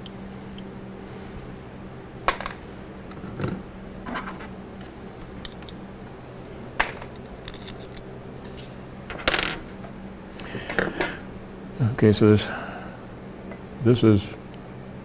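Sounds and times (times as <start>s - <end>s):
steady low hum: 0.0s - 15.0s
tools rattling and scraping: 2.3s - 4.6s, 6.8s - 10.0s.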